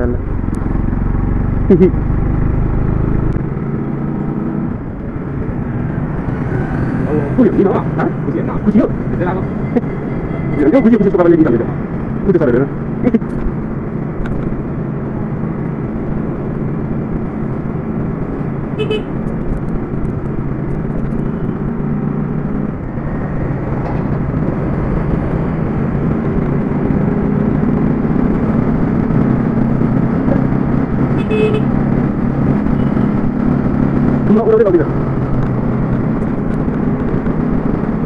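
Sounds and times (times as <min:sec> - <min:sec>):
horn tooting: 0:18.8 - 0:19.2, 0:31.2 - 0:31.7.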